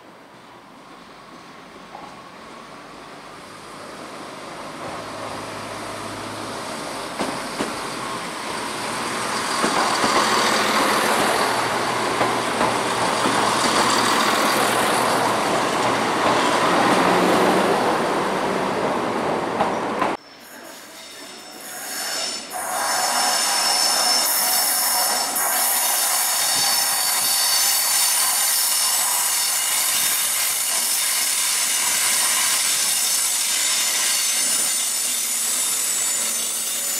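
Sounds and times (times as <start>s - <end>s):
train engine and wheel noise: 0.0s - 36.9s.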